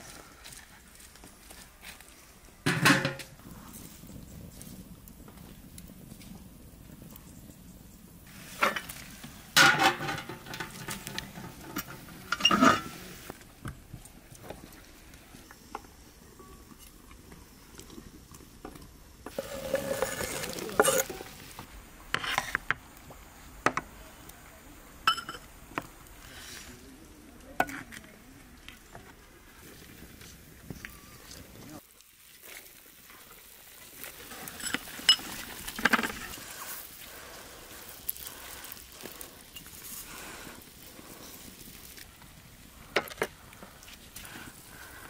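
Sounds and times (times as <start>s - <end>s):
wok sizzling: 1.8s - 4.8s, 8.0s - 27.8s, 28.8s - 45.0s
metal pots and utensils clattering: 2.7s - 3.3s, 8.5s - 13.1s, 19.3s - 21.4s, 25.1s - 25.5s, 34.2s - 36.4s.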